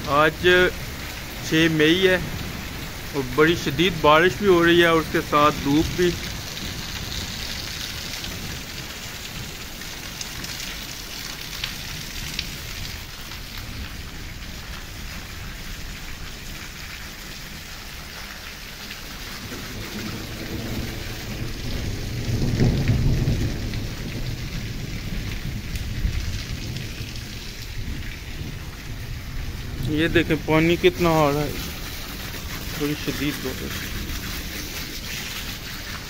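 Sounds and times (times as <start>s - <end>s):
thunder rumbling: 0.0s - 10.6s, 18.7s - 36.0s
heavy rain falling: 0.0s - 36.0s
sharp raindrop hits: 0.0s - 36.0s.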